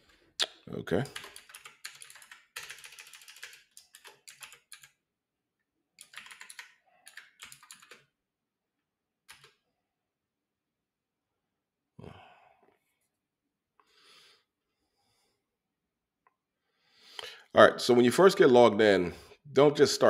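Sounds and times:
computer keyboard typing: 0:01.0 - 0:05.0, 0:06.0 - 0:08.2, 0:09.3 - 0:09.6.

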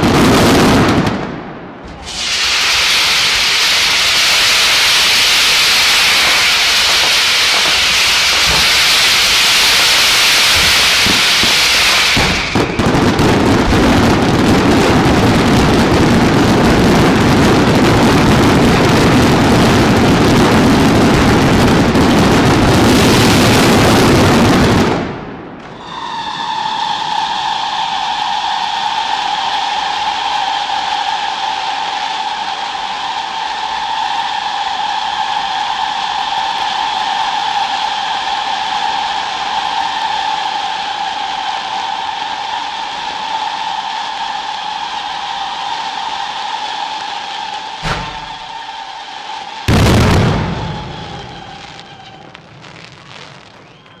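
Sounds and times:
fireworks bursts and crackling: 0:00.0 - 0:54.0
steady whistle: 0:02.1 - 0:12.9, 0:25.7 - 0:52.4, 0:53.5 - 0:54.0.

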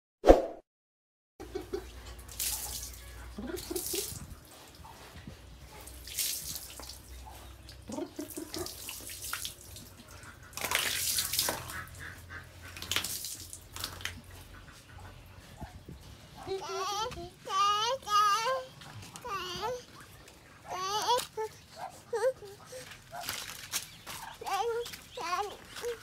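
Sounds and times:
water splashing on concrete floor: 0:01.8 - 0:04.4, 0:05.8 - 0:14.3, 0:22.9 - 0:26.0.

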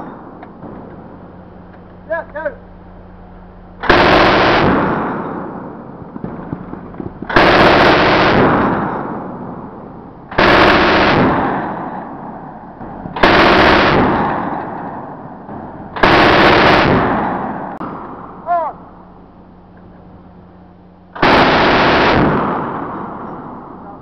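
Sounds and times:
cannon firing rapid bursts: 0:03.8 - 0:19.0, 0:21.1 - 0:23.8.

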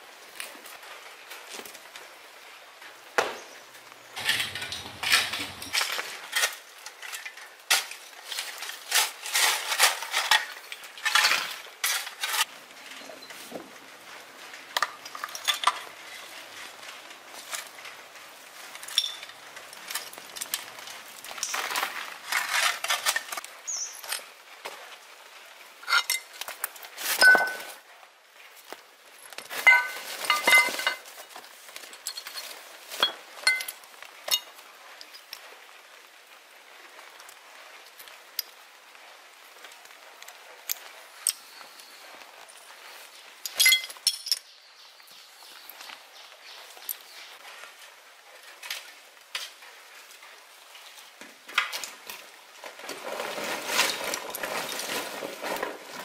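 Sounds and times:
hard objects clinking: 0:04.2 - 0:08.0, 0:18.8 - 0:20.6, 0:27.2 - 0:27.8, 0:29.3 - 0:34.5, 0:43.4 - 0:44.5
utensils clinking and scraping cookware: 0:04.2 - 0:12.5, 0:29.5 - 0:31.3.

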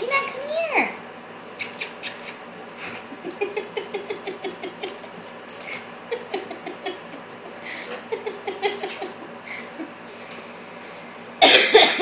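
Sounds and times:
puppy claws pattering on floor: 0:01.6 - 0:07.2.

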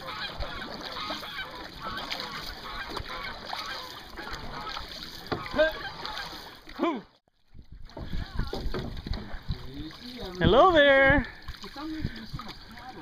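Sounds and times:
geese honking: 0:00.0 - 0:06.4.

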